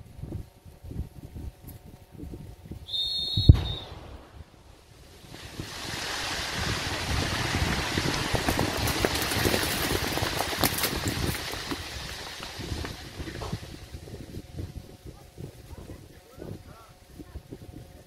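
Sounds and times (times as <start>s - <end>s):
sharp explosion blast: 3.4s - 4.7s
debris falling with crackles: 5.1s - 14.7s.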